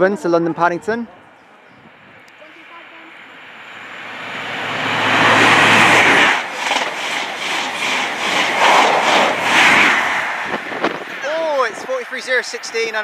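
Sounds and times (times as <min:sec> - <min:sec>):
diesel engine passing: 0:01.8 - 0:13.0
wheels clacking over rail joints: 0:04.9 - 0:10.0.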